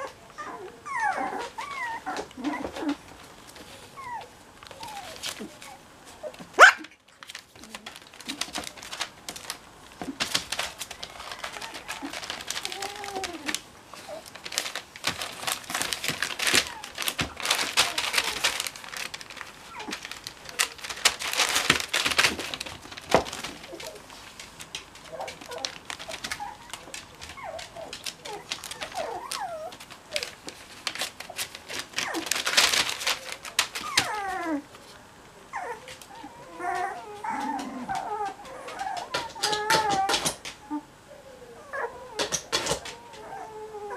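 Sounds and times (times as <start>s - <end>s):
puppy whimpers and squeaks: 0.0s - 2.9s, 35.6s - 43.9s
paws crinkling newspaper: 0.0s - 43.9s.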